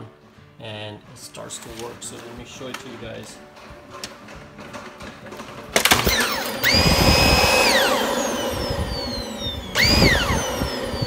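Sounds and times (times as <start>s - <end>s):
vacuum motor whine: 5.8s - 11.0s.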